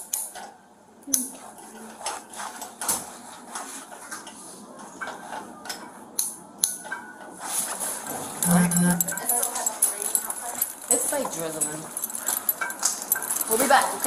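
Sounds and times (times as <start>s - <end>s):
handcuffs clinking and clicking: 8.4s - 14.0s.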